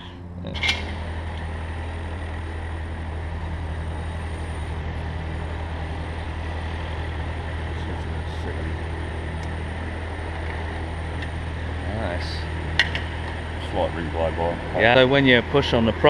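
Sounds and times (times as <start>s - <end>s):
constant low hum: 0.0s - 16.0s
compressed air hissing: 3.6s - 7.1s.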